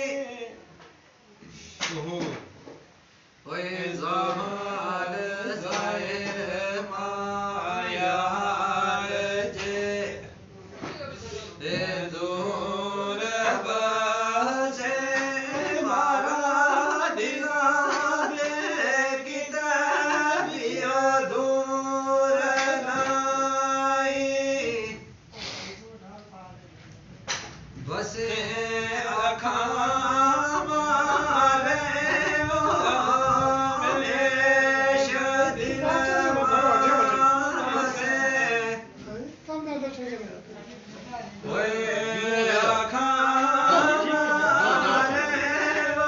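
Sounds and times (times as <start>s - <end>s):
person singing chant-like melody: 27.9s - 38.9s, 41.5s - 46.0s.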